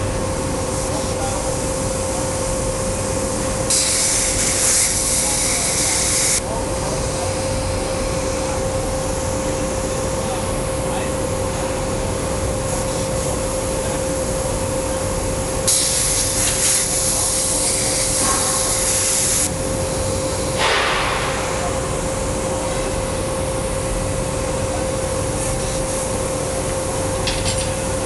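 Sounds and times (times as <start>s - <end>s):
plasma arc hissing: 3.3s - 6.4s, 15.6s - 22.0s.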